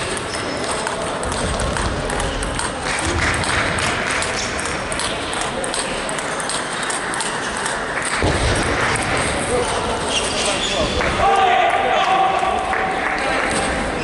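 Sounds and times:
table tennis ball clicking: 0:00.0 - 0:08.2
hall background noise: 0:00.0 - 0:14.0.

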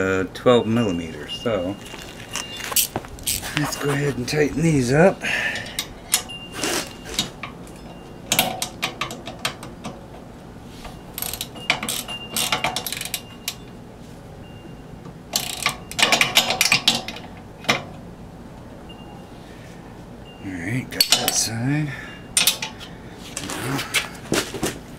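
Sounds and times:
ratchet wrench clicking: 0:11.2 - 0:13.2, 0:15.4 - 0:16.9.

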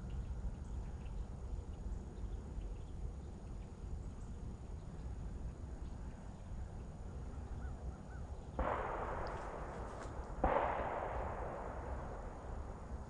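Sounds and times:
shotgun shots with echo: 0:08.6 - 0:13.0.

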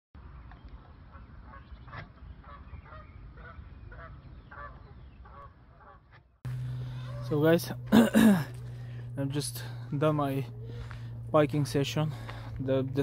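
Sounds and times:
geese honking: 0:01.1 - 0:11.3.

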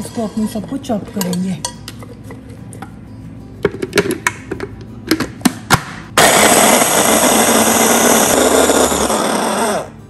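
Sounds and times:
food chopper motor chopping: 0:06.2 - 0:09.9.

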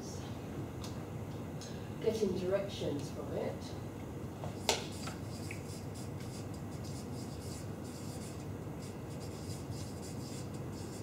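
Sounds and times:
low room hum: 0:00.0 - 0:11.0
marker pen scratching on paper: 0:04.9 - 0:11.0.

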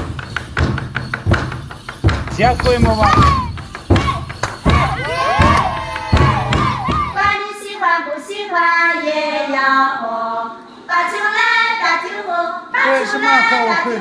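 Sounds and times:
thumping: 0:00.0 - 0:07.3
people shouting: 0:02.4 - 0:07.3
women singing folk song: 0:03.3 - 0:14.0.

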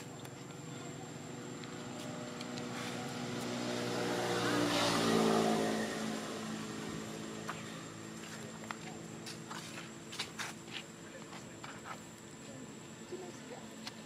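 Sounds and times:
vehicle engine passing by: 0:01.7 - 0:09.3.

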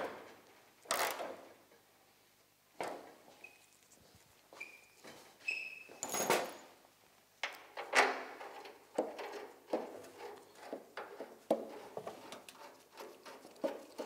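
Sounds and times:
metal clicks and knocks: 0:07.4 - 0:14.0.

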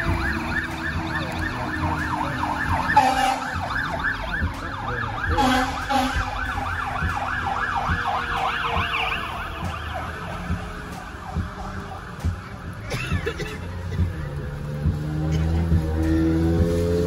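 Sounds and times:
emergency siren fast yelp: 0:00.0 - 0:12.8.

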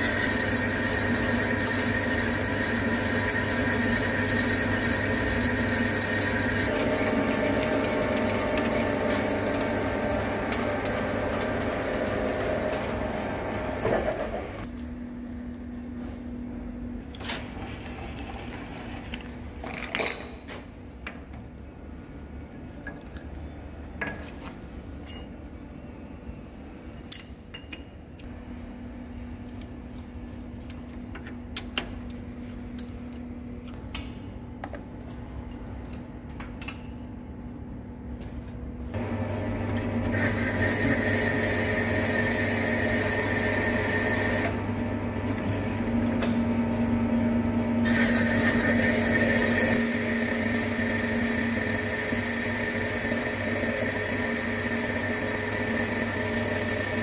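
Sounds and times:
lathe machining steel: 0:00.0 - 0:14.6, 0:40.0 - 0:44.6.

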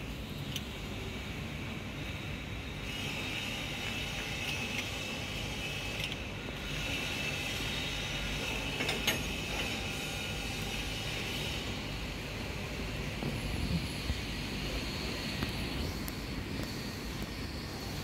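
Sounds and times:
mechanical drone with hiss: 0:00.0 - 0:18.0.

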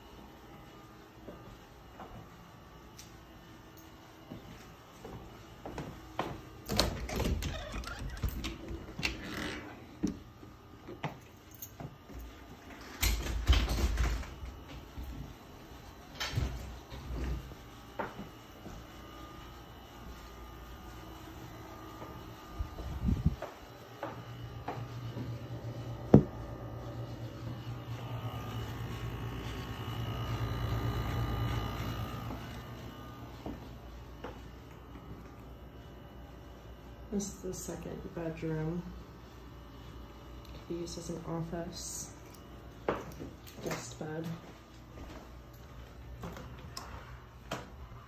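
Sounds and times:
low hum: 0:19.0 - 0:38.8.

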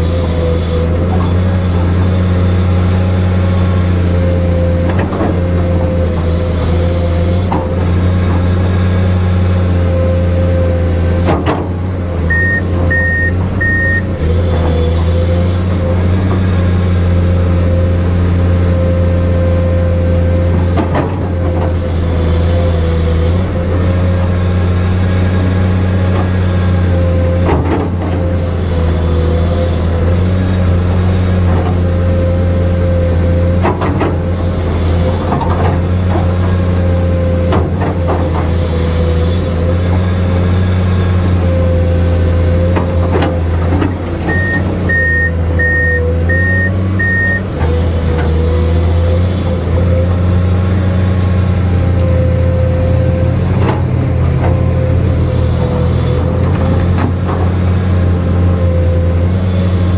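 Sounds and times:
excavator diesel engine whining: 0:00.0 - 0:59.9
short electronic beeps: 0:12.3 - 0:14.1, 0:44.3 - 0:47.5.

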